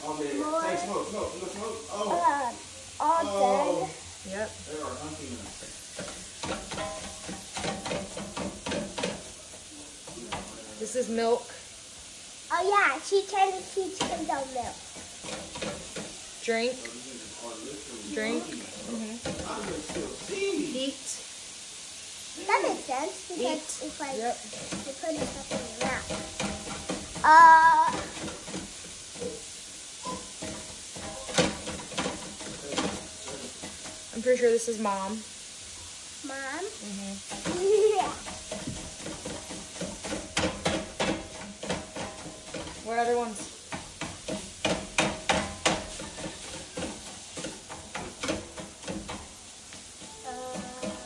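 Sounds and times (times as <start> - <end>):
sausage sizzling in a skillet: 0.0 - 51.0
spatula scraping a pan: 4.8 - 11.2, 13.6 - 16.8, 18.1 - 20.9, 23.4 - 36.2, 37.2 - 51.0
child squealing: 27.2 - 28.0.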